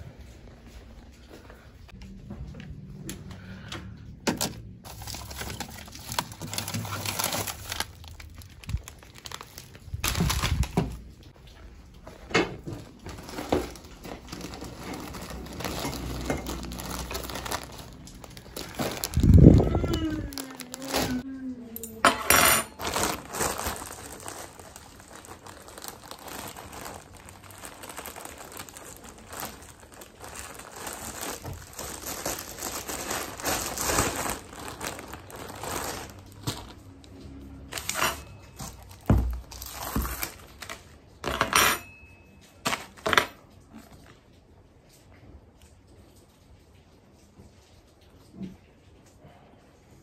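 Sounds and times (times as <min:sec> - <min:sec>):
plastic bag crinkling: 0:04.4 - 0:21.2, 0:22.7 - 0:41.4.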